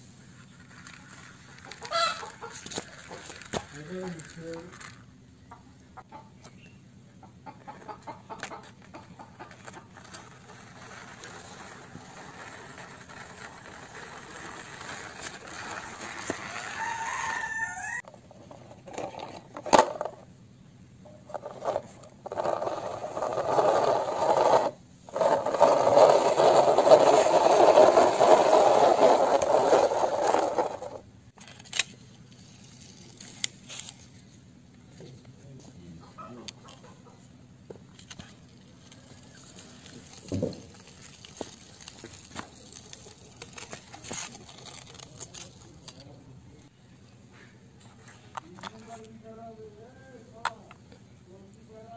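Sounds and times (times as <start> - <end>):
plastic toys clicking on concrete: 0.6 - 5.1, 7.9 - 16.8
chickens clucking: 1.4 - 3.6, 5.4 - 10.3, 35.9 - 37.4
rooster crowing: 1.9 - 2.3, 16.4 - 18.0.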